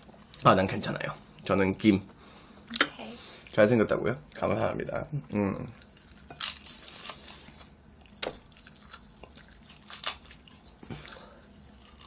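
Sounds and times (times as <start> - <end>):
chewing with crisp crackles: 5.2 - 12.0.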